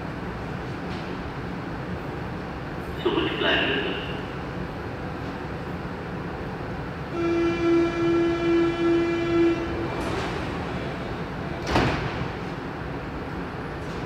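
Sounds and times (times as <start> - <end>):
sliding doors shutting thud: 11.5 - 12.6.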